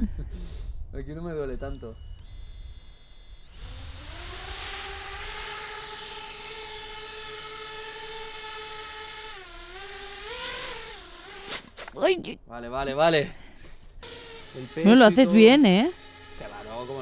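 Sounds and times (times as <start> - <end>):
quadcopter motors whining: 1.6 - 12.0, 13.9 - 17.0.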